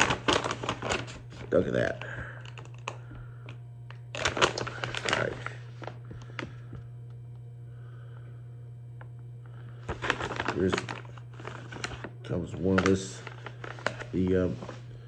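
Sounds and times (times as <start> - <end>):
plastic bag crinkling: 0.0 - 3.1, 4.1 - 6.5, 9.8 - 15.0
steady low hum: 0.0 - 15.0
small crackles: 9.8 - 15.0.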